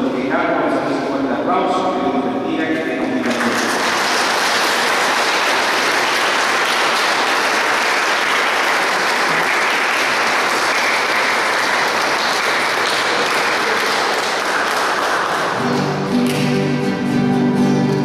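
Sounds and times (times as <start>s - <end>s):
crowd applauding: 3.2s - 16.9s.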